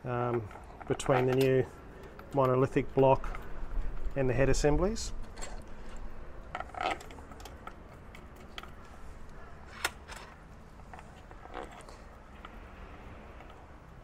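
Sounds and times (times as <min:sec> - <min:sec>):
metal parts clicking and tapping: 0:00.2 - 0:04.3, 0:05.2 - 0:09.0.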